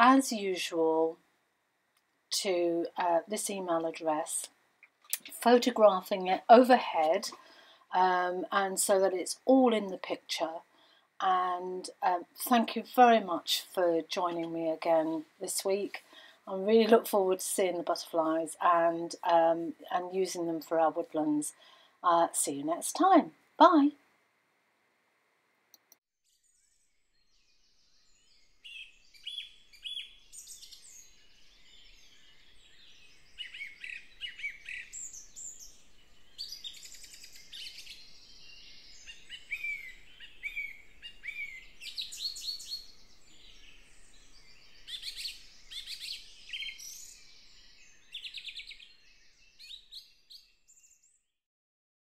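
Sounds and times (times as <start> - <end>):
birdsong chirps and trills: 26.4 - 51.3.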